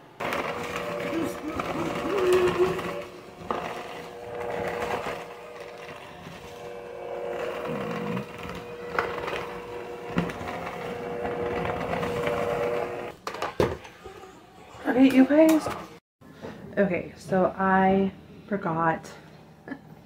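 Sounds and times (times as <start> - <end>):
electric hand mixer running: 0.0 - 13.2.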